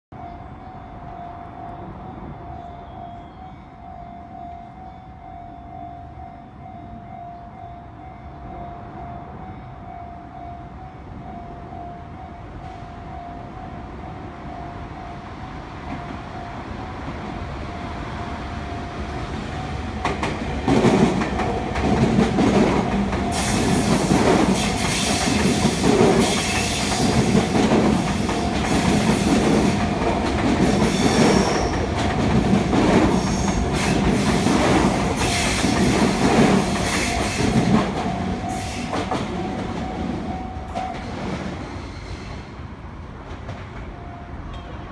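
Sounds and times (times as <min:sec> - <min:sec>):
crossing warning bell ringing: 0:00.1 - 0:41.8, 0:43.8 - 0:44.9
electric train passing: 0:00.2 - 0:44.9
wheels clacking over rail joints: 0:19.8 - 0:41.7.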